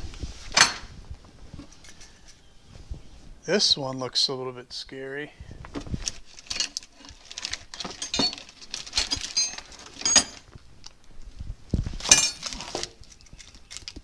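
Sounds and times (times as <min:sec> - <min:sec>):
plastic wrapping rustling: 0:05.7 - 0:14.0
steel wrenches clinking: 0:06.3 - 0:10.5, 0:12.0 - 0:13.9.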